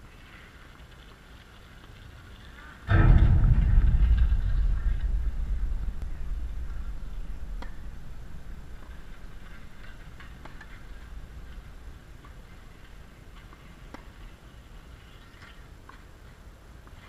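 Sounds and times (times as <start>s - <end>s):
low rumble: 2.9s - 13.4s.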